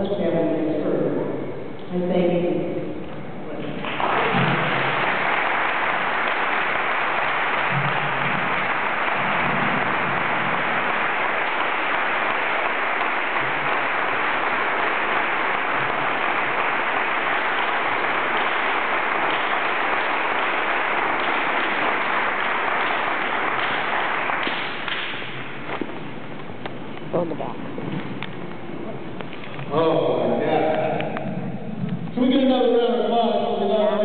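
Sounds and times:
audience applauding: 3.6s - 26.1s.

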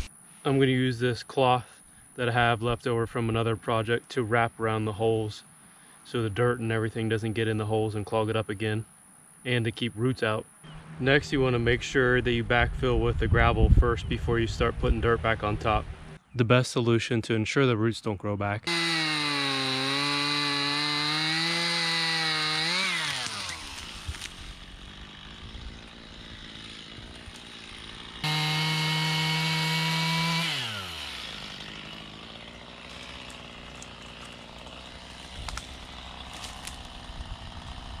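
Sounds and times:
chainsaw cutting tree trunk: 18.6s - 38.0s.

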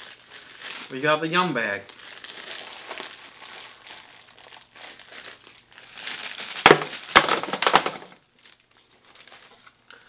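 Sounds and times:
plastic snack bag crinkling: 0.0s - 10.0s.

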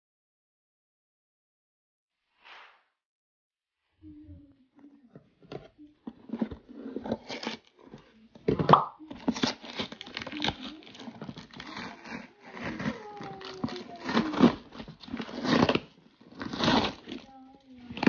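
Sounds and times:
cardboard box being torn open: 6.2s - 8.2s, 9.1s - 18.0s.

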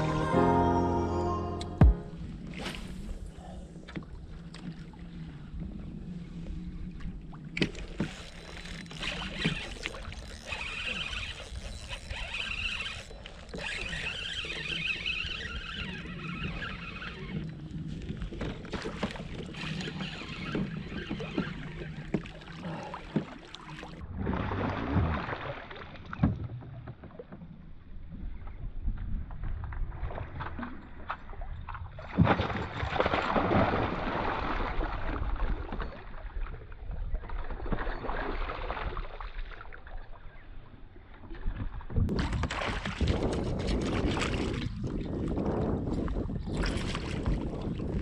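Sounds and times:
wind on microphone: 41.5s - 48.0s
fish thrashing and splashing water: 42.1s - 45.3s.

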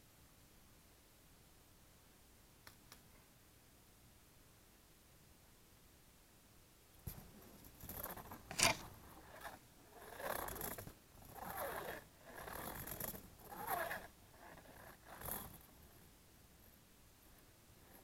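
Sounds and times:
short scraping rustling sounds: 7.1s - 14.1s.

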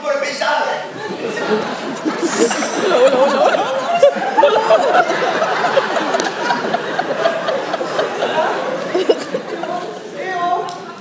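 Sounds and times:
audience laughing: 0.7s - 10.2s.

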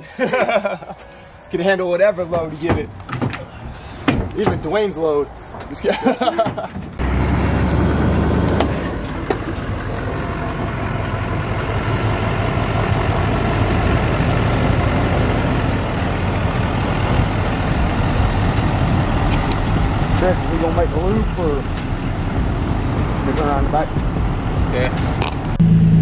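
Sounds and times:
diesel pickup engine running: 7.0s - 26.0s.

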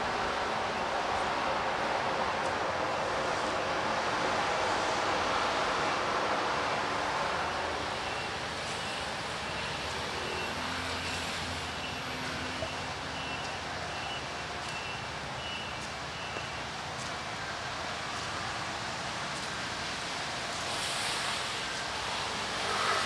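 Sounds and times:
rain hiss: 0.0s - 23.0s
tyres swishing on wet pavement: 0.0s - 23.0s.

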